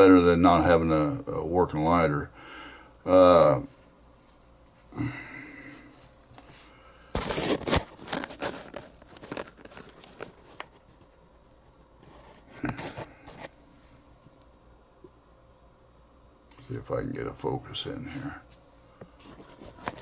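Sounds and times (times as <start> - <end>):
plastic crinkling and rustling: 5.8 - 11.1, 17.9 - 20.0.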